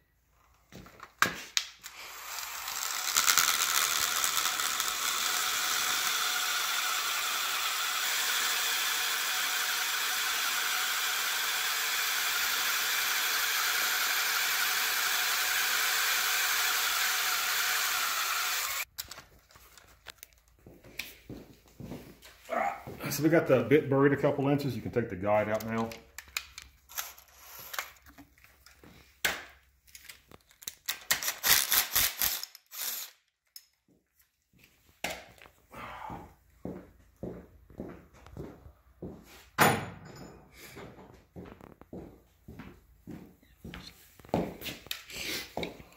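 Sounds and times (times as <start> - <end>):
cordless drill drilling into metal: 1.8 - 18.9, 31.2 - 33.2.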